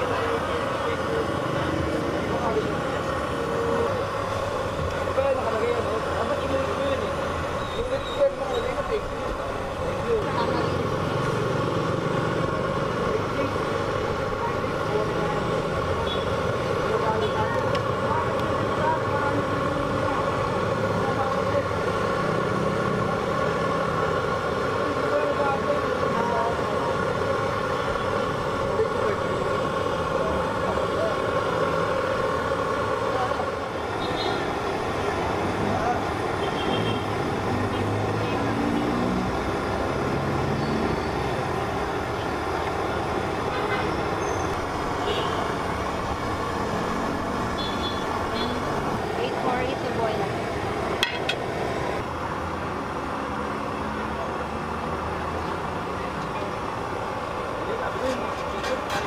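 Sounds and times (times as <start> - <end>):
faint voices: 0.0 - 40.2
city street traffic hum: 0.0 - 59.0.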